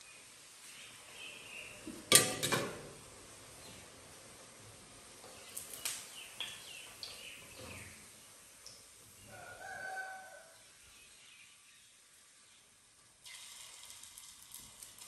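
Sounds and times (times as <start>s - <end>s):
rooster crowing: 9.3s - 10.7s.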